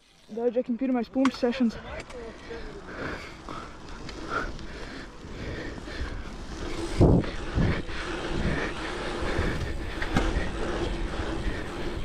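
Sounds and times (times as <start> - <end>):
bike tyres humming on tarmac: 0.0 - 12.0
wind on microphone: 5.6 - 12.0.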